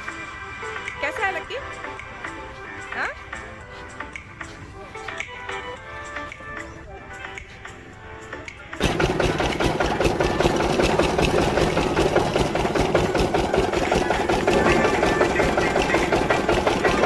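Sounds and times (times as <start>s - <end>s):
small engine chugging: 8.8s - 17.0s.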